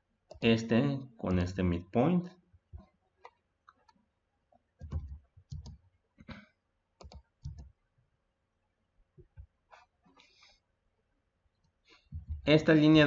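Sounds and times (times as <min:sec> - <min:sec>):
keyboard keystrokes: 0:04.8 - 0:05.8, 0:07.0 - 0:07.7
computer mouse clicks: 0:04.8 - 0:06.4, 0:07.0 - 0:07.7.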